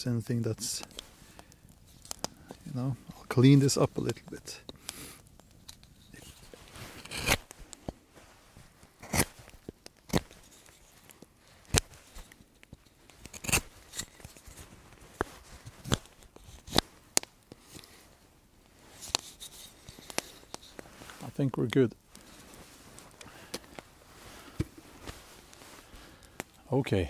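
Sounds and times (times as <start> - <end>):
knife scraping wooden board: 6.9 - 7.4, 9.0 - 9.3, 13.3 - 14.1.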